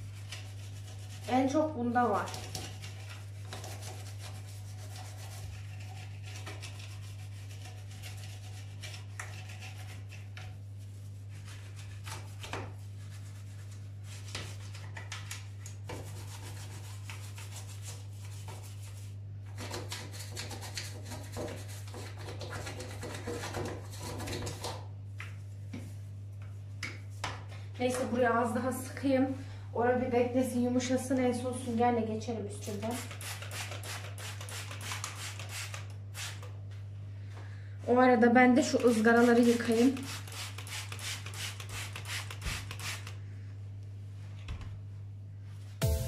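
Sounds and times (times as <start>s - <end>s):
toothbrush scrubbing: 0.0s - 24.8s, 32.7s - 36.4s, 38.6s - 43.2s
low steady hum: 23.7s - 33.1s.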